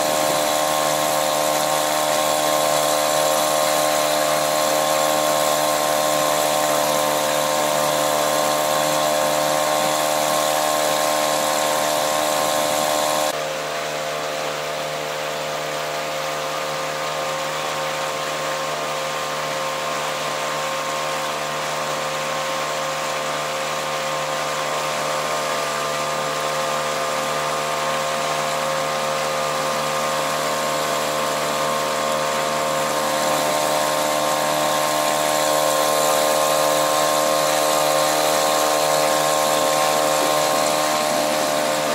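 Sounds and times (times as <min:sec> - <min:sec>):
outboard motor running: 0:00.0 - 0:41.9.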